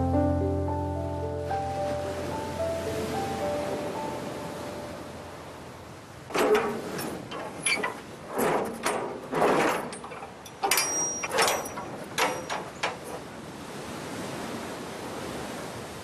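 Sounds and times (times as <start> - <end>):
metal handles clanking and scraping: 6.3 - 13.3
keys and lock rattling: 9.8 - 13.0.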